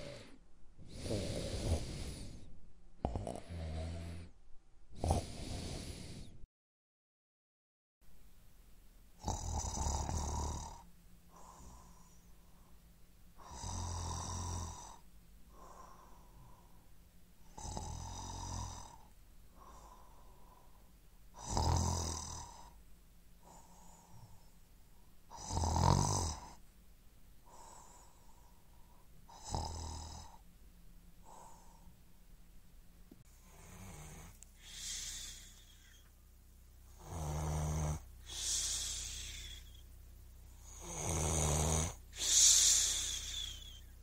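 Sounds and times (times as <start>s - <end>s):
soft breathing: 0.0s - 2.6s, 5.0s - 6.5s, 10.6s - 21.0s, 22.4s - 25.4s, 27.4s - 32.2s, 33.1s - 37.2s, 38.0s - 41.1s, 41.9s - 44.0s
man snoring: 0.0s - 4.4s, 5.0s - 6.4s, 9.2s - 12.2s, 13.4s - 16.6s, 17.4s - 20.2s, 21.4s - 22.8s, 25.3s - 26.6s, 29.3s - 30.4s, 33.4s - 36.1s, 36.9s - 39.8s, 40.6s - 43.9s.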